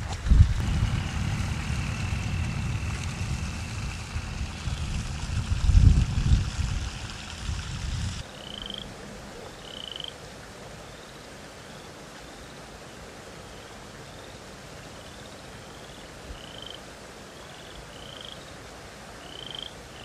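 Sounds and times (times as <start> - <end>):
wind on microphone: 0.0 - 8.2.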